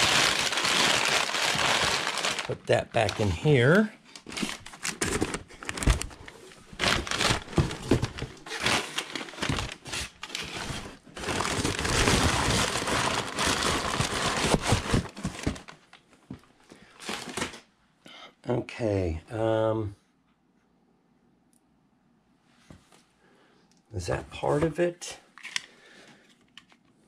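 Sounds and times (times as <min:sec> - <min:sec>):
packing material crumpling: 0:00.0 - 0:15.8.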